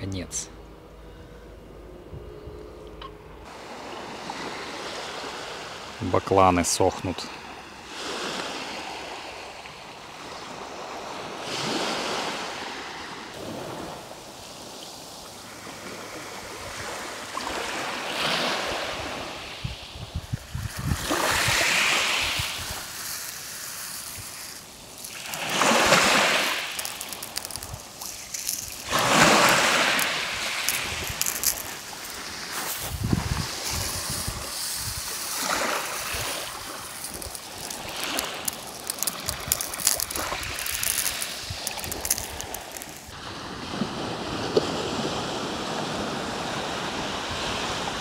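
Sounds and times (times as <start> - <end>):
sea waves breaking on shore: 3.5 - 48.0
wind rumbling on microphone: 18.9 - 45.4.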